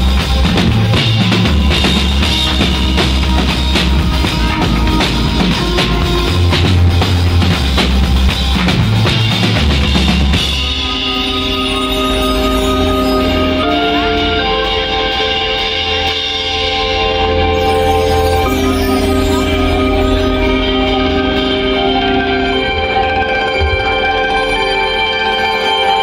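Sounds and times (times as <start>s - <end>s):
drum kit steady beat: 0.0s - 24.6s
held synth chords: 0.0s - 26.0s
keyboards: 0.0s - 26.0s
pulsing synth bass: 0.0s - 26.0s.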